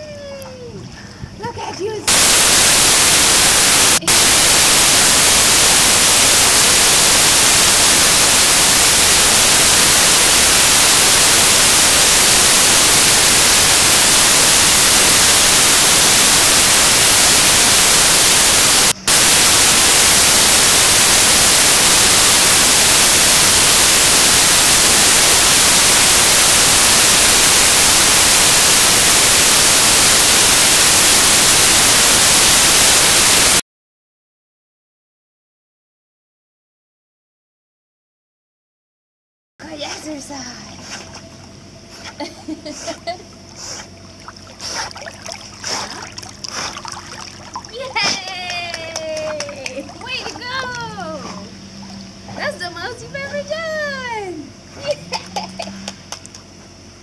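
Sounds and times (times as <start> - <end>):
static hiss: 2.1 - 33.6.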